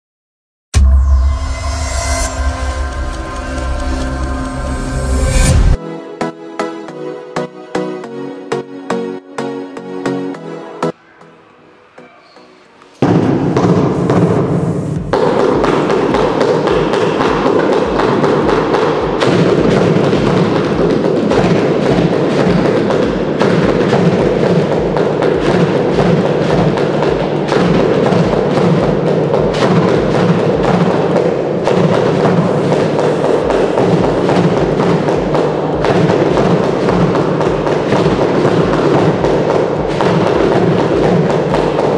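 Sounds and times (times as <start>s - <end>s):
small drum beaten with sticks: 15.0s - 41.9s.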